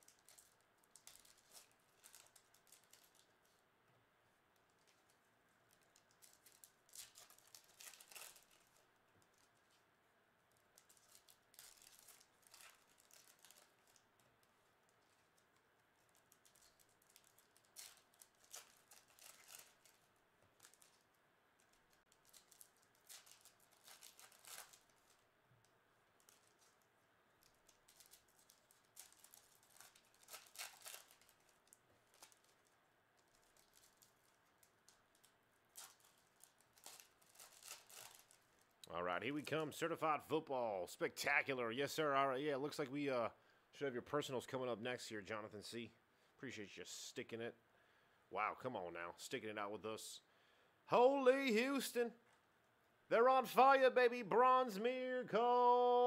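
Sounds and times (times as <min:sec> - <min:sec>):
foil wrappers crinkling and tearing: 0:00.0 - 0:03.6, 0:04.6 - 0:09.9, 0:10.5 - 0:25.3, 0:26.2 - 0:38.8.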